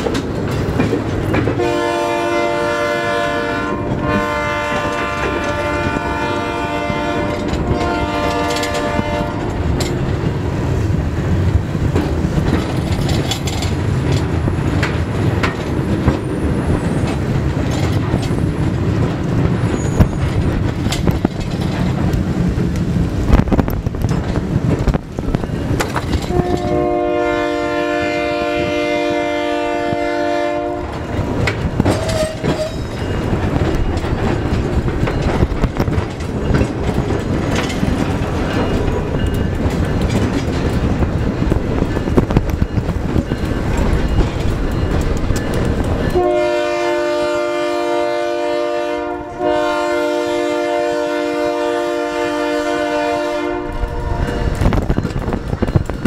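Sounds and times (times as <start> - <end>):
wheels and couplers clanking: 0.0 - 1.8, 7.2 - 27.1, 30.8 - 46.3
freight train rumbling past: 0.0 - 56.0
train horn blasts: 1.5 - 9.7, 26.2 - 31.1, 46.1 - 54.7.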